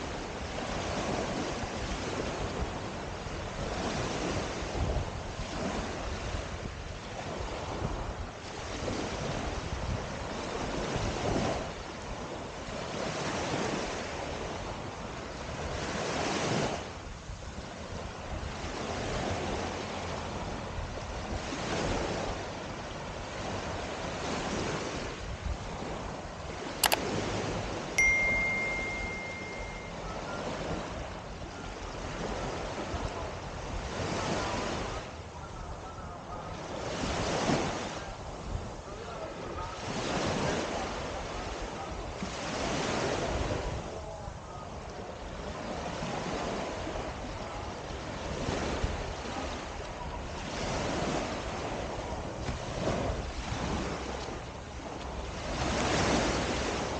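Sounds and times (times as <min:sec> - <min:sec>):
small waves washing onto beach: 0:00.0 - 0:56.9
sharp click: 0:26.8 - 0:27.0
short high beep: 0:28.0 - 0:30.3.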